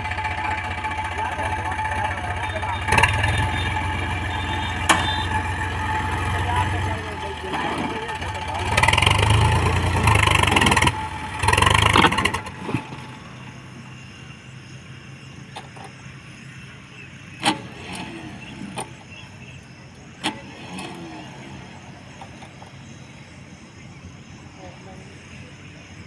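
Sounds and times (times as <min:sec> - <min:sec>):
tractor diesel engine revving: 0:00.0 - 0:26.0
sharp knocks: 0:04.7 - 0:05.4.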